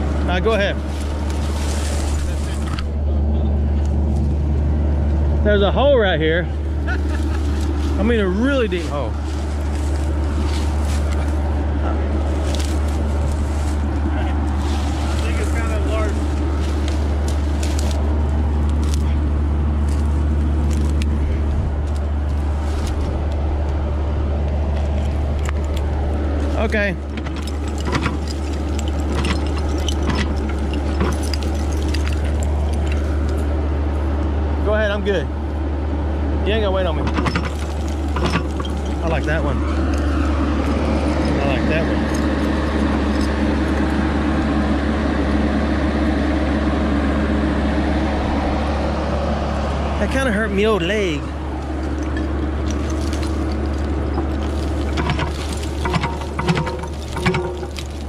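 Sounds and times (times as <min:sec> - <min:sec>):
excavator diesel engine droning: 0:00.0 - 0:58.0
bucket digging into dirt: 0:52.1 - 0:58.0.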